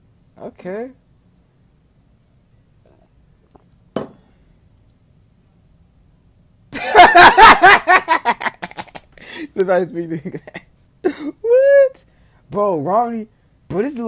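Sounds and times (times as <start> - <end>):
short knock: 4.0 - 4.2
young man laughing loudly: 6.7 - 11.8.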